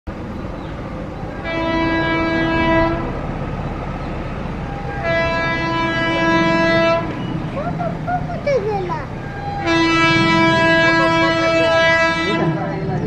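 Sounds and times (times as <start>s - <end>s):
freight train rumble: 0.1s - 13.0s
locomotive horn blasts: 1.3s - 3.3s, 4.5s - 7.5s, 9.2s - 13.0s.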